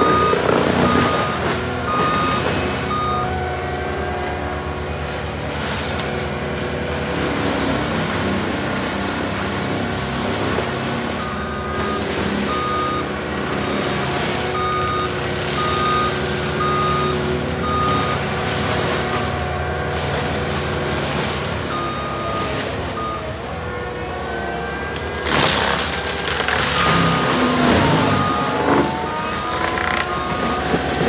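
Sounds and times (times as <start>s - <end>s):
reversing alarm beeping: 0.0s - 8.0s, 9.6s - 31.0s
diesel engine running: 0.0s - 31.0s.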